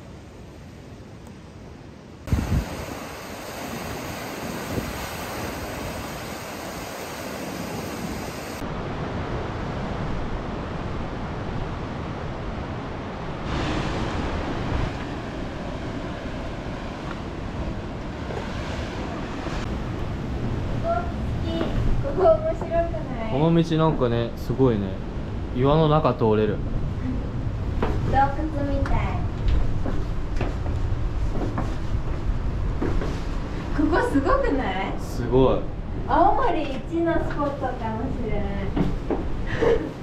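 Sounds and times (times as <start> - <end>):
wind buffeting microphone: 2.2 - 24.4
sea surf washing over rocks: 2.3 - 21.0.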